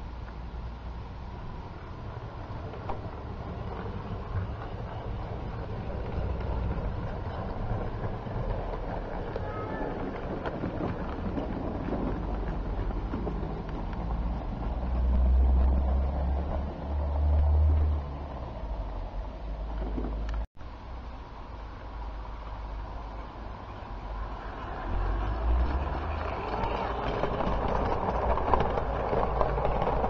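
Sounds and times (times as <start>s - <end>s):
model train rumbling and clattering: 0.0s - 20.5s, 22.3s - 30.0s
wind buffeting microphone: 1.3s - 20.4s.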